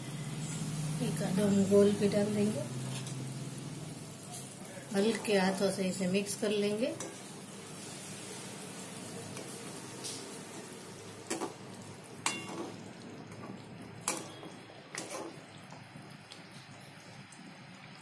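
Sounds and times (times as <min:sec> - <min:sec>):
bubbling simmer: 0:07.0 - 0:18.0
spoon clinking against pan: 0:12.2 - 0:12.7.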